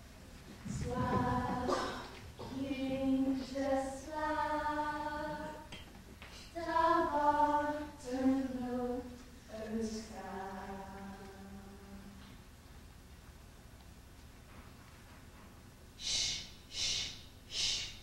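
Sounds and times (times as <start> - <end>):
person singing unaccompanied: 0.7 - 5.7.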